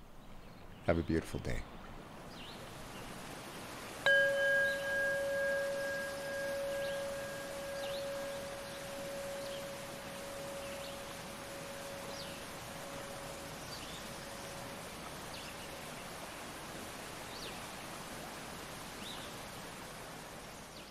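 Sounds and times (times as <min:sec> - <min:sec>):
waterfall rushing into pool: 0:02.0 - 0:20.9
bird chirping: 0:04.1 - 0:15.8
steady ringing tone: 0:04.1 - 0:15.8.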